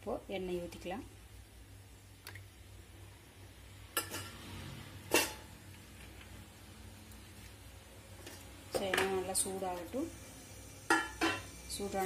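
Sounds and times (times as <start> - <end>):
utensils clanking against pan: 4.0 - 4.4, 5.1 - 5.5, 10.9 - 11.5.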